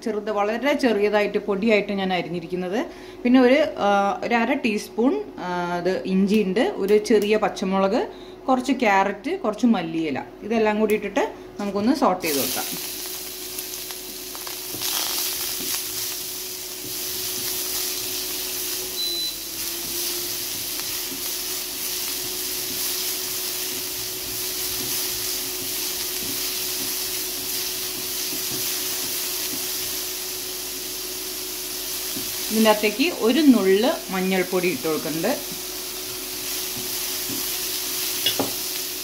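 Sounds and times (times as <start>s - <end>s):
steady hum: 0.0s - 39.0s
vegetables sizzling in oil: 12.2s - 39.0s
wooden spatula stirring: 15.5s - 30.0s.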